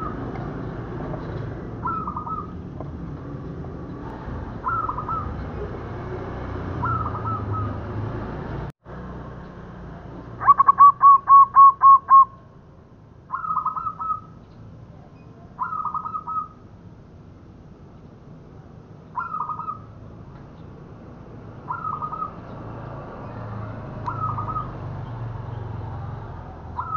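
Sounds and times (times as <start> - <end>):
dove cooing: 1.8 - 2.6, 4.6 - 5.7, 6.8 - 7.9, 10.4 - 12.3, 13.3 - 14.3, 15.6 - 16.6, 21.7 - 22.4, 24.1 - 24.8.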